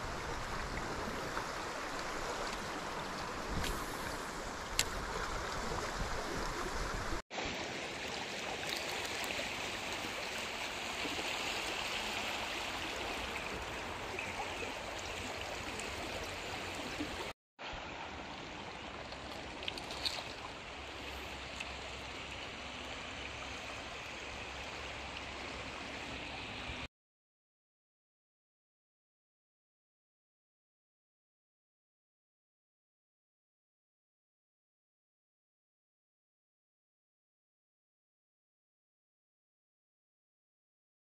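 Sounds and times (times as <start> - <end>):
river flowing over gravel: 0.0 - 26.9.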